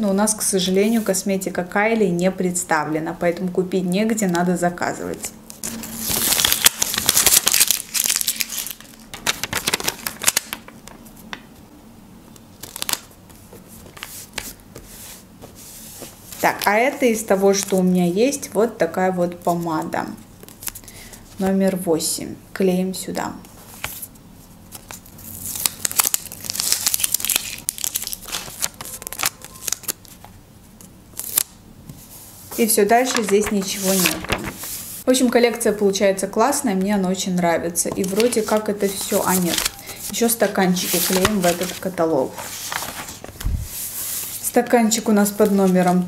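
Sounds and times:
paper crinkling and rustling: 5.5 - 11.4, 12.6 - 16.8, 23.6 - 30.4, 33.0 - 35.0, 37.9 - 44.6, 45.3 - 46.0
paper sticker peeling: 33.1 - 34.8, 38.0 - 41.9.

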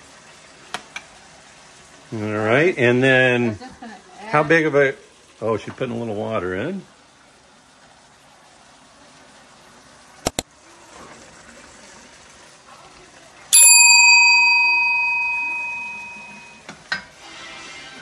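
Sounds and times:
bell-like ring of struck metal: 13.6 - 16.6.

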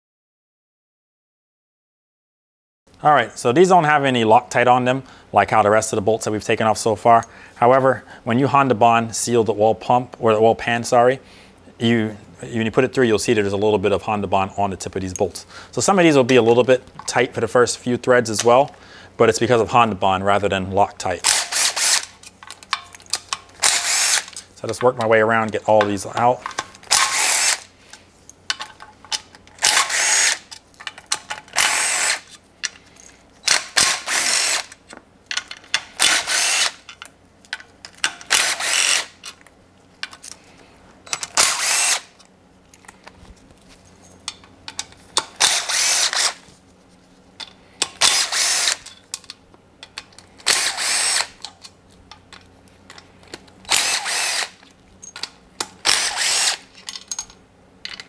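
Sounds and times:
power tool whirring: 21.3 - 22.2, 23.6 - 24.4, 26.8 - 27.7, 29.6 - 30.5, 31.5 - 32.4, 33.4 - 34.8, 36.0 - 36.9, 38.2 - 39.2, 41.1 - 42.2, 45.4 - 46.5, 48.0 - 48.9, 50.4 - 51.4, 53.7 - 54.6, 55.8 - 56.7.

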